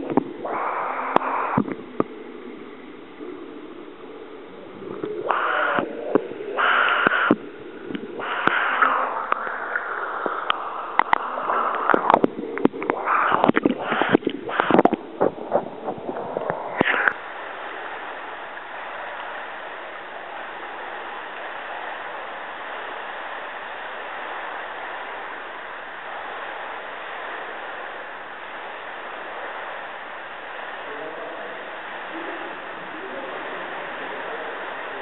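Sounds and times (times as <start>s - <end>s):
steady hiss: 0.0s - 35.0s
sharp clicks: 5.0s - 17.2s.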